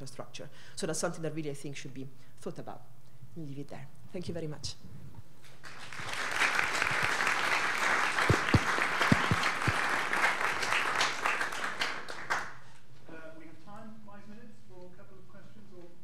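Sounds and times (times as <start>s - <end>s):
audience applauding: 5.5s - 12.9s.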